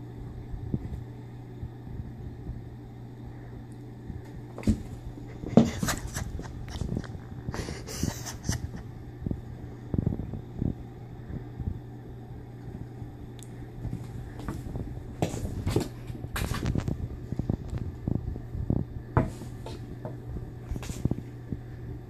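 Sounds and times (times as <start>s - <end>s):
steady low hum: 0.0s - 22.0s
cats scuffling on carpet: 4.6s - 7.1s, 13.8s - 17.8s, 20.6s - 21.2s.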